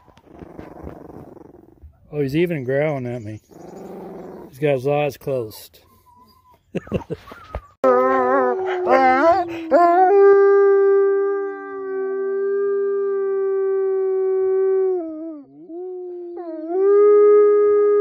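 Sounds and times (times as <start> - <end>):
wolf howling: 7.8 - 18.0.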